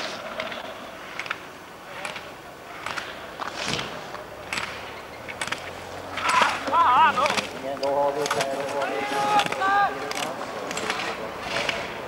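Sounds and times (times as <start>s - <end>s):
skis swishing on snow: 1.9s - 4.1s.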